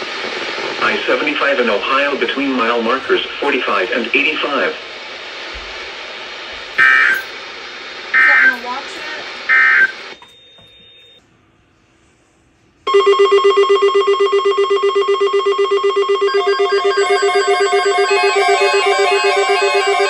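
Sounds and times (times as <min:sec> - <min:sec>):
warbling data burst: 0:06.7 - 0:10.3, 0:14.4 - 0:20.0
high beep: 0:06.8 - 0:07.3, 0:08.2 - 0:08.6
rapid electronic alarm beeps: 0:06.8 - 0:07.4, 0:08.2 - 0:08.8, 0:09.5 - 0:11.2, 0:12.9 - 0:20.0.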